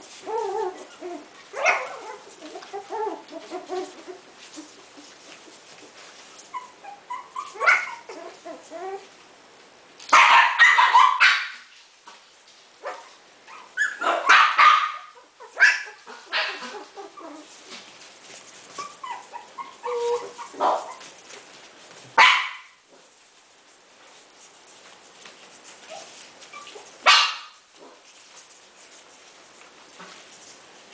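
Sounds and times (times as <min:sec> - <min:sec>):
puppies yapping: 0:00.1 - 0:09.0, 0:12.8 - 0:17.8, 0:18.6 - 0:21.4.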